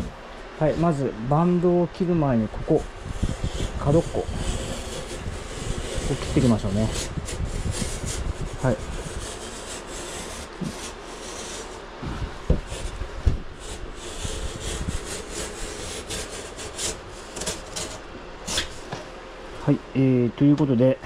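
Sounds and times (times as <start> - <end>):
knife sawing through cardboard: 2.7 - 18.8.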